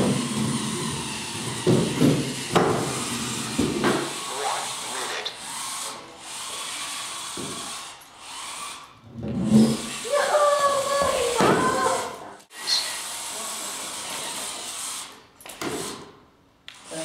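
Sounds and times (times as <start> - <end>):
gearbox whir: 0.0 - 10.4
electric motors whining: 0.0 - 16.1.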